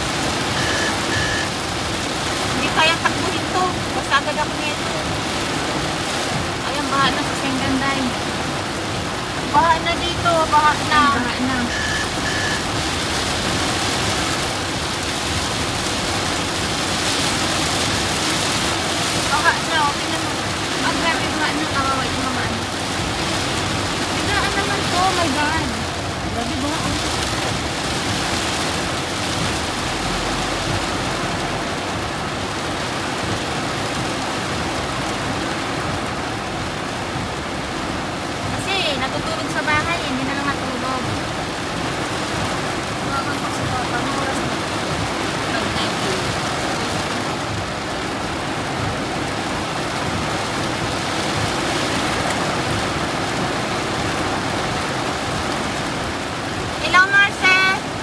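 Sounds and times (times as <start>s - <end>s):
heavy rain on car roof: 0.0s - 58.0s.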